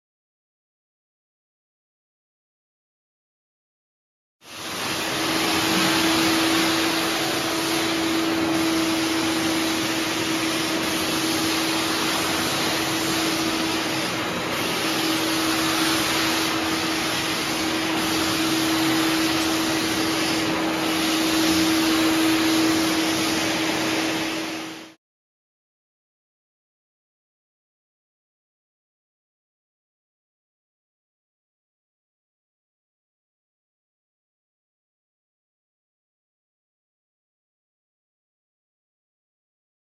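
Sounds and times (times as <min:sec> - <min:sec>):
wet vacuum running: 0:04.5 - 0:25.0.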